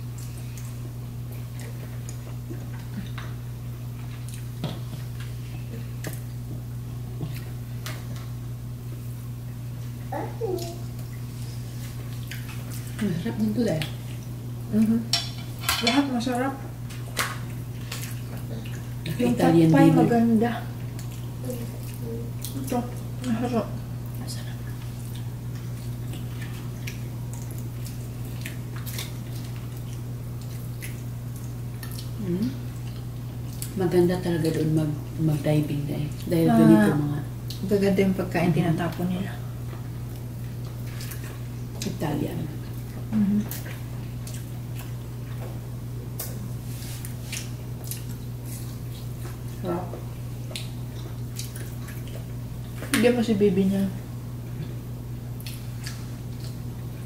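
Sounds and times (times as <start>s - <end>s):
steady low hum: 0.0s - 57.0s
chewing: 0.2s - 6.3s, 9.8s - 13.1s, 16.9s - 19.2s, 20.8s - 23.4s, 24.0s - 33.8s, 39.6s - 42.0s, 42.6s - 45.6s, 46.2s - 52.9s, 54.6s - 57.0s
forks tapping on plates: 15.1s - 16.1s.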